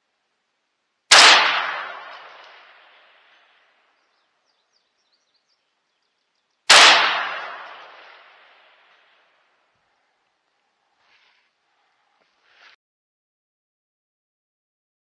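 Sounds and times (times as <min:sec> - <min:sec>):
rifle shots echoing: 0:01.1 - 0:03.4, 0:06.7 - 0:09.0.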